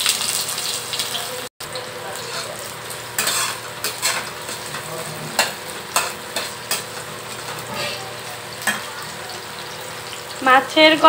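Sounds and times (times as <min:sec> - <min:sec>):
sharp oil crackles: 0:00.0 - 0:01.5
onions sizzling in oil: 0:00.0 - 0:11.0.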